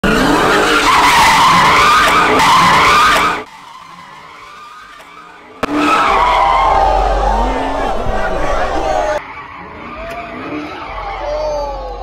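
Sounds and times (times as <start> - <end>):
car engine revving: 5.6 - 9.2.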